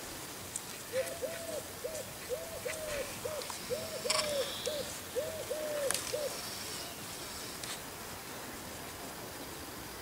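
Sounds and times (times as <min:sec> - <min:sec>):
bird hooting call: 0:00.9 - 0:07.0.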